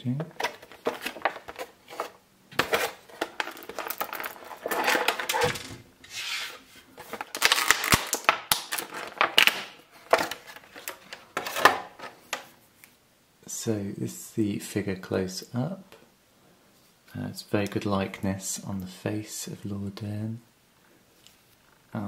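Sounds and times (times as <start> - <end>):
plastic blister tray crackling: 0.0 - 5.8, 7.0 - 12.4.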